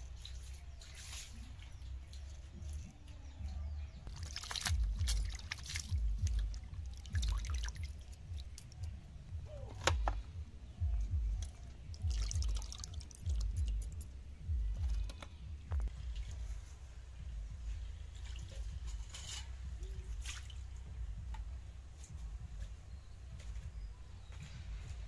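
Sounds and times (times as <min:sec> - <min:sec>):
water splashing in a bowl: 0:04.1 - 0:08.9, 0:11.4 - 0:14.1, 0:20.1 - 0:20.6
low dull thumps: 0:04.7 - 0:25.0.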